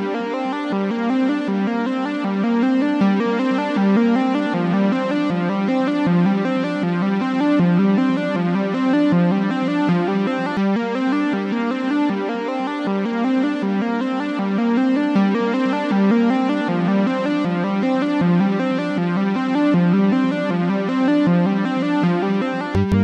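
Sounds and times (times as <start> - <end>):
electronic synthesizer tune: 22.8 - 23.0.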